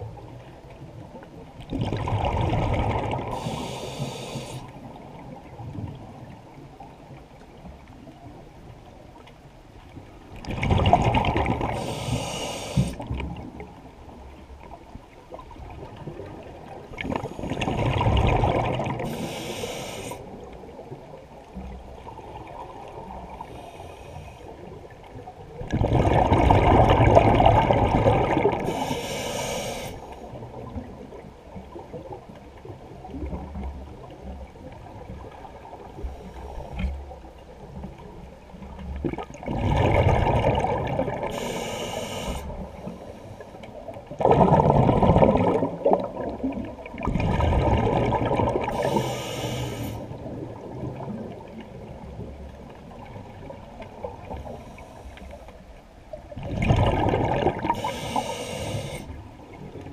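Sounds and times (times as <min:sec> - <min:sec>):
exhaled bubbles underwater: 0:00.0 - 0:08.7, 0:10.3 - 0:29.3, 0:30.2 - 0:42.9, 0:43.7 - 0:59.9
water noise: 0:00.0 - 0:59.9
regulator inhale hiss: 0:03.3 - 0:04.8, 0:11.8 - 0:13.0, 0:19.0 - 0:20.4, 0:23.4 - 0:24.7, 0:28.6 - 0:30.4, 0:41.3 - 0:43.7, 0:48.7 - 0:50.2, 0:54.3 - 0:55.6, 0:57.7 - 0:59.2.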